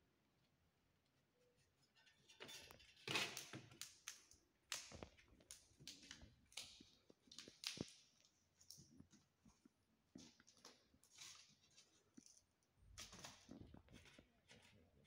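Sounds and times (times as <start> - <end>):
crinkly rustles: 4.9 - 15.0.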